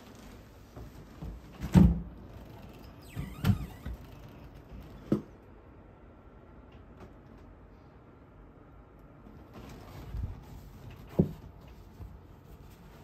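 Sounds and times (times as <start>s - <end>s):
cabinet door creak: 2.2s - 5.2s.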